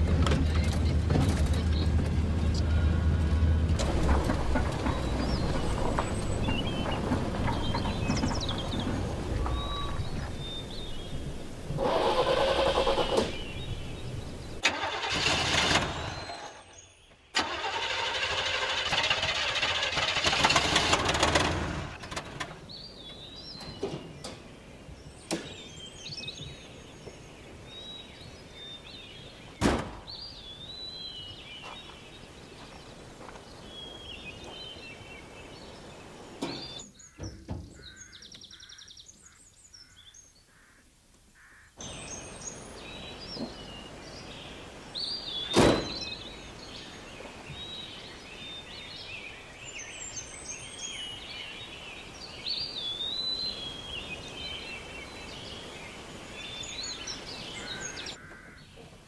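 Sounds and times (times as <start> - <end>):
birds chirping: 0.0 - 59.0
car engine cranking: 3.6 - 10.0, 11.7 - 16.6, 17.4 - 22.4.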